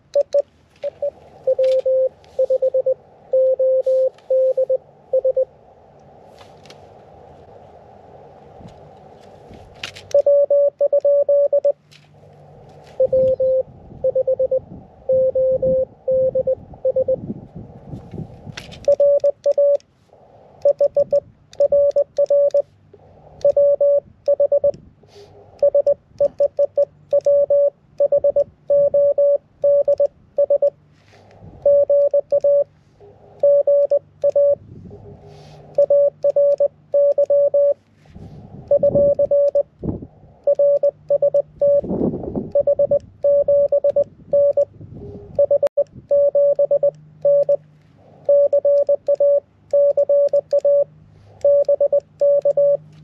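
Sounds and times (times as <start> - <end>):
morse code beeps: 0.0 - 5.5, 10.1 - 11.8, 13.0 - 17.2, 18.8 - 19.8, 20.6 - 22.7, 23.4 - 24.8, 25.6 - 30.8, 31.6 - 32.7, 33.4 - 34.6, 35.7 - 37.8, 38.7 - 39.7, 40.4 - 41.9, 42.5 - 44.7, 45.4 - 47.6, 48.2 - 53.0
lower-pitched morse signal: 0.1 - 5.5, 10.1 - 11.8, 13.0 - 17.2, 18.9 - 19.8, 20.6 - 22.7, 23.4 - 24.8, 25.6 - 30.8, 31.6 - 32.7, 33.4 - 34.6, 35.7 - 37.8, 38.7 - 39.7, 40.4 - 41.9, 42.5 - 44.7, 45.4 - 47.6, 48.2 - 52.9
radio receiver hiss: 3.8 - 4.8.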